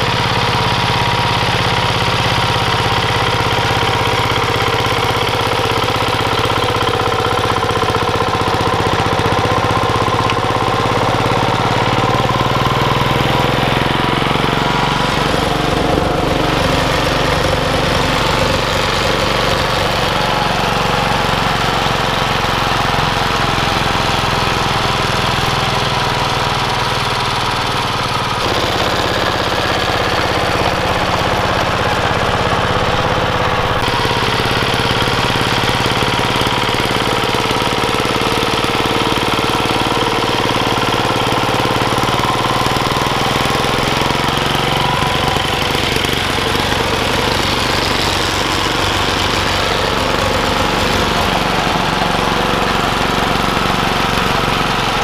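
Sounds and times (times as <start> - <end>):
diesel engine running under load: 0.0 - 55.0.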